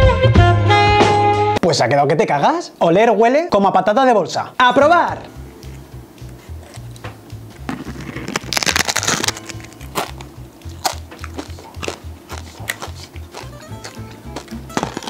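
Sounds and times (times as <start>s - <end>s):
background music: 0.0s - 1.6s, 4.6s - 15.0s
crunchy chewing: 5.6s - 7.0s, 7.6s - 15.0s
crunchy chip bite: 7.6s - 15.0s.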